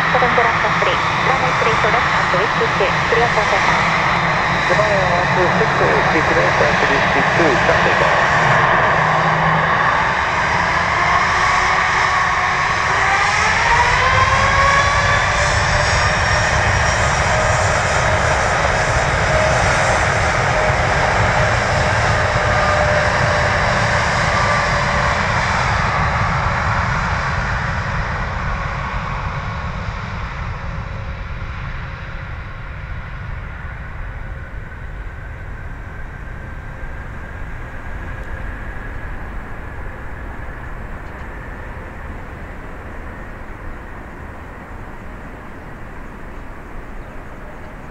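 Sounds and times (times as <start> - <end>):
jet engines spooling up: 0.0 - 15.1.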